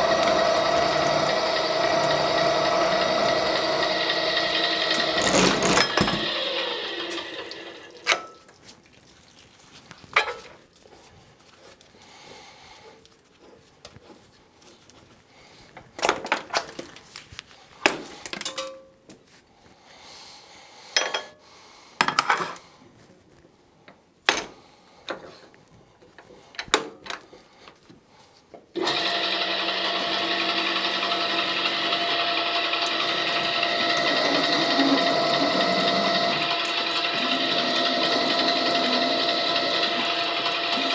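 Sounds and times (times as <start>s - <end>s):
pipe threading machine running: 0.0s - 8.1s, 28.8s - 40.9s.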